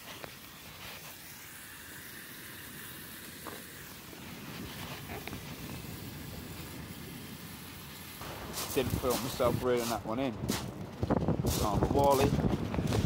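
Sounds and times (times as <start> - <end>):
bacon sizzling in a pan: 0.9 - 4.2.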